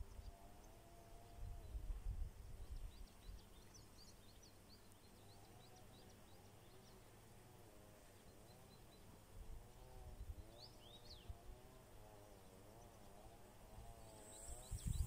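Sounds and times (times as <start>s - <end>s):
faint wavering hum: 5.2s - 15.0s.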